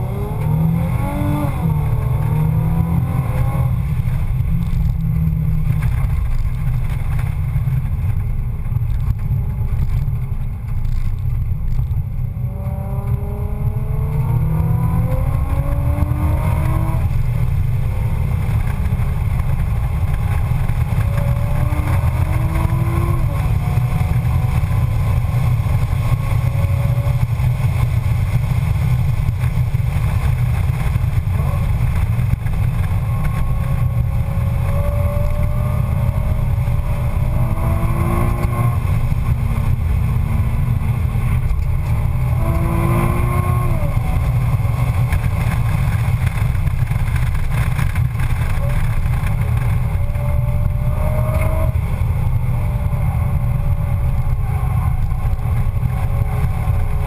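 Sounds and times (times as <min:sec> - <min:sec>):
car engine accelerating: 0:00.0 - 0:57.0
road and wind rumble: 0:00.0 - 0:57.0.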